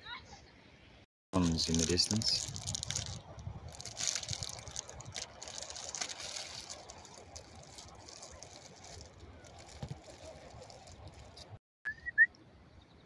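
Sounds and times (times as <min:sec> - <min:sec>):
wind rumbling on microphone: 0:01.4 - 0:11.6.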